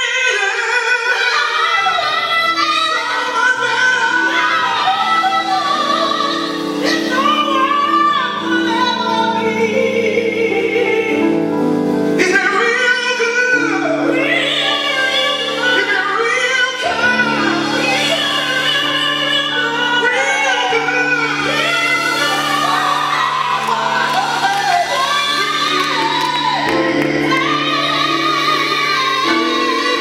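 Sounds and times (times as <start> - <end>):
woman singing gospel: 0.0 - 30.0
sustained accompaniment chords: 13.2 - 30.0.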